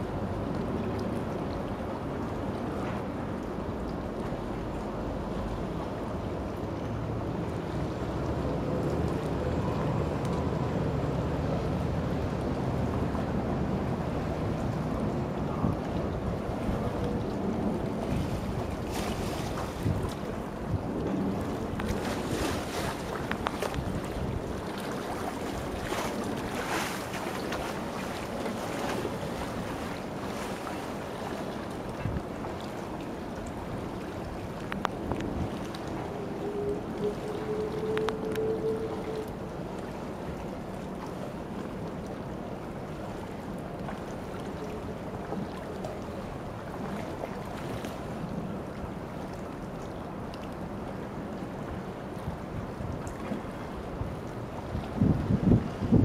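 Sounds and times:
wind rumbling on microphone: 0.0s - 56.0s
faint ticks: 34.7s - 35.3s.

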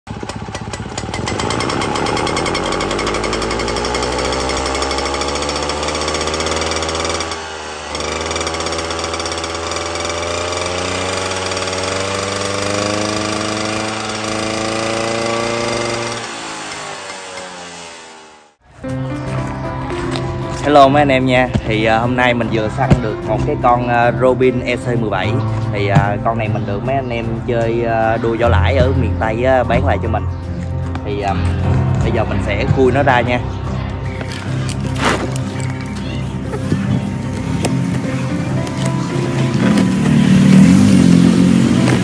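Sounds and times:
two-stroke engine revving: 0.1s - 18.6s, 34.3s - 42.0s.

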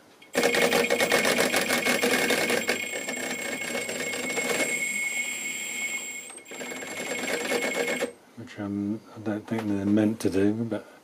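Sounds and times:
electric motor rattling: 0.3s - 8.1s.

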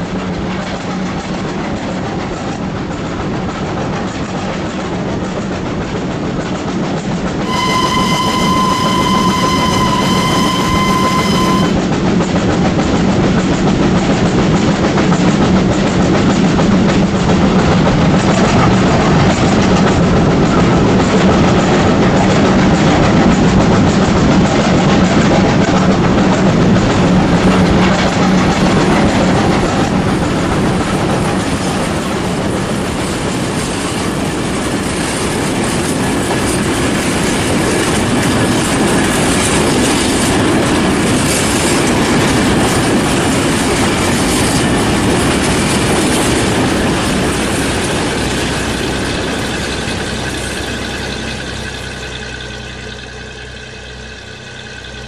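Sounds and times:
model train wheels and motors rolling: 0.1s - 11.8s, 12.4s - 55.0s
steam whistle: 7.4s - 11.8s.

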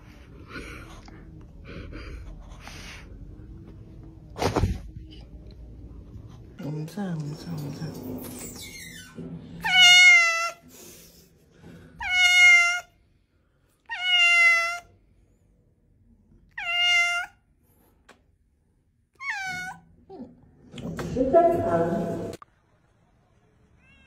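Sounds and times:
cat meowing: 9.6s - 10.6s, 12.0s - 13.0s, 13.8s - 14.9s, 16.5s - 17.4s, 19.2s - 19.9s, 23.8s - 24.0s.

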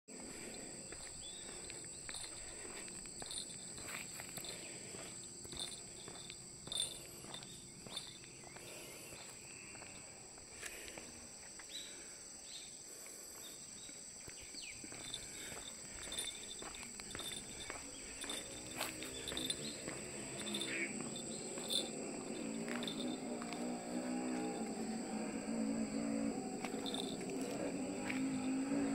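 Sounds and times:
light footsteps: 0.1s - 11.7s, 13.4s - 28.9s
high-pitched insect chorus: 0.1s - 28.9s
bird chirps: 13.8s - 23.6s.

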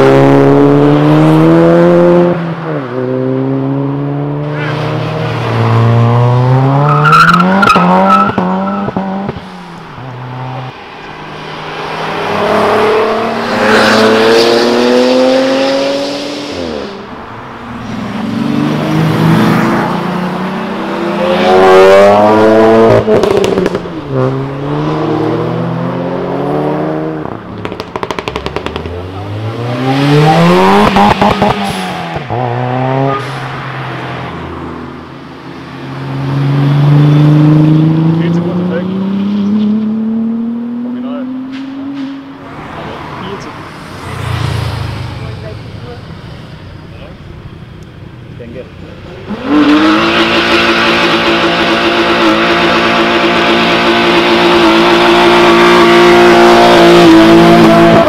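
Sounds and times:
car engines revving past: 0.0s - 58.0s
exhaust cracks and pops: 27.6s - 29.0s.

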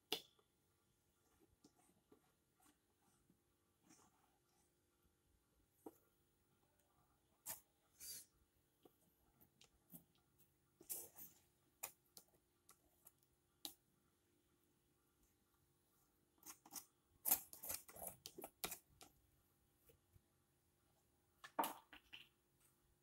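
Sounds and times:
palette knife scraping paint: 7.4s - 8.4s, 16.4s - 19.2s.

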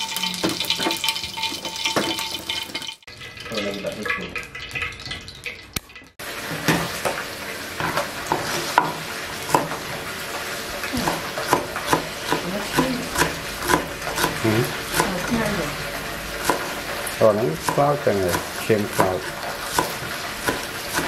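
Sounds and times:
knife chopping on cutting board: 8.3s - 9.8s, 11.0s - 15.2s, 16.4s - 16.8s, 17.6s - 21.0s.

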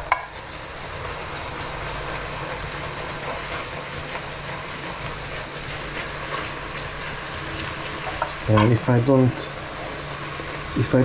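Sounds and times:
chicken sizzling in a frying pan: 0.0s - 11.0s.

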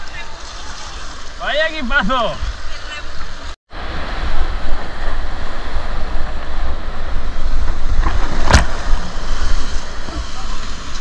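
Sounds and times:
river water: 0.0s - 11.0s
wind rumble on microphone: 3.8s - 11.0s.

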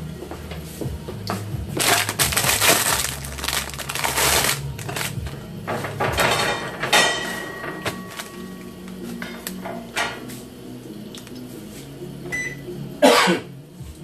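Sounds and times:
tortillas rustling: 1.7s - 6.2s.

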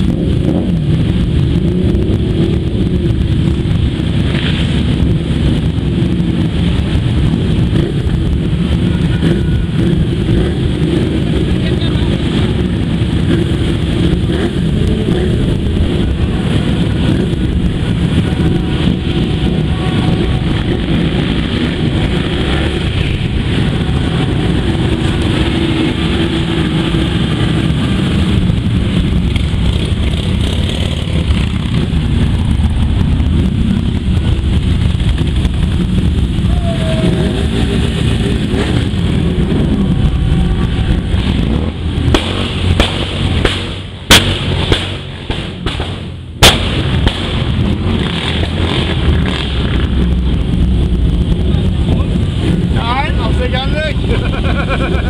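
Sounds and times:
motorcycles passing: 0.0s - 55.0s
sharp bangs: 38.1s - 49.9s.

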